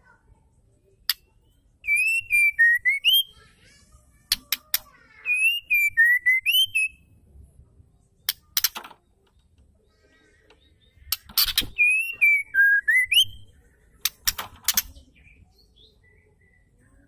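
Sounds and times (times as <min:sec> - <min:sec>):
bird singing whistled notes: 0:01.4 - 0:03.4, 0:05.2 - 0:07.1, 0:10.6 - 0:13.6
sharp clicks: 0:04.3 - 0:04.9, 0:08.2 - 0:09.5, 0:14.0 - 0:15.0.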